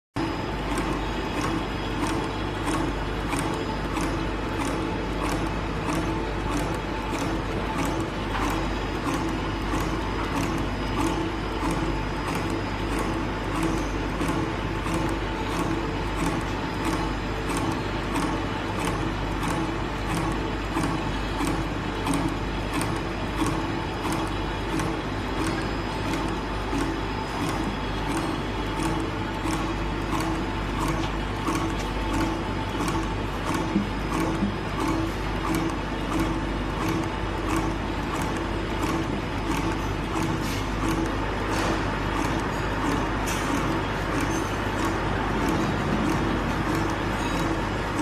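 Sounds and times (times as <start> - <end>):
extruder mechanical hum: 0.2 - 48.0.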